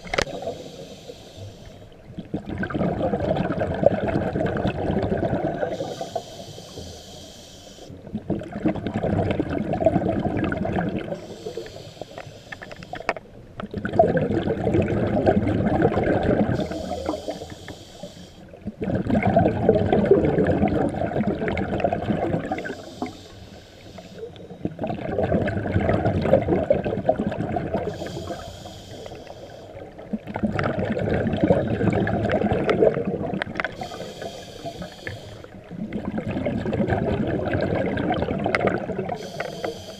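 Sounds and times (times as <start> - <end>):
bubbling exhaled air: 0.0 - 7.4, 8.0 - 39.9
regulator inhale hiss: 0.3 - 2.0, 5.7 - 8.0, 11.1 - 13.2, 16.6 - 18.5, 22.4 - 24.6, 27.9 - 29.9, 33.7 - 35.6, 39.1 - 39.9.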